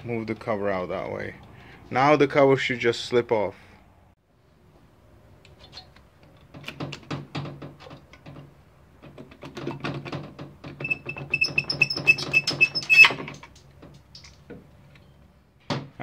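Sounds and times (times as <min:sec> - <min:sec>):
engine cover knocking and clicking: 0:06.2 - 0:11.2.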